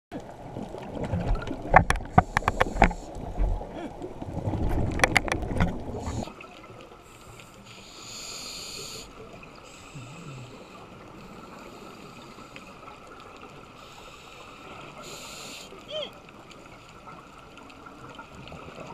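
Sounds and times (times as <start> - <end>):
diver's exhaled bubbles gurgling: 0.2 - 6.6
steady underwater hiss: 2.0 - 4.2, 5.8 - 18.9.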